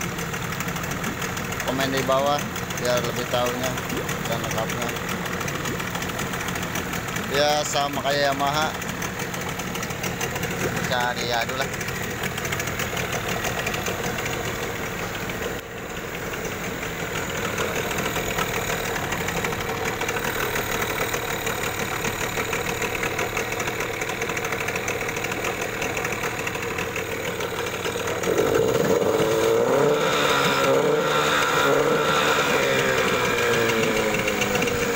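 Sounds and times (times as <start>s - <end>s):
outboard motor revving: 0.0s - 34.9s.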